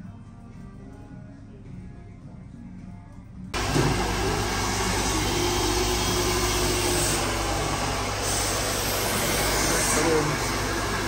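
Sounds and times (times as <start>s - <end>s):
faint background music: 0.0s - 3.6s
hair dryer blowing: 3.6s - 11.0s.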